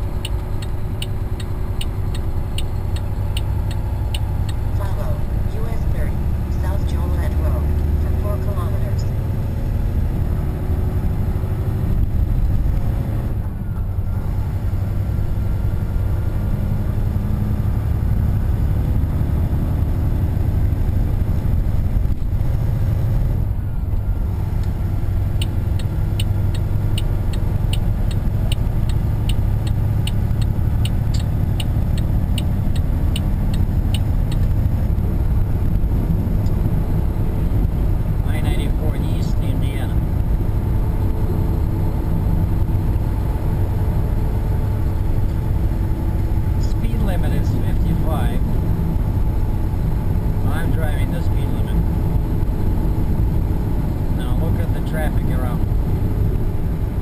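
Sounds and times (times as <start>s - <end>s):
steady ticking: 0.0s - 5.8s, 25.4s - 34.5s
truck engine and road rumble: 0.0s - 57.0s.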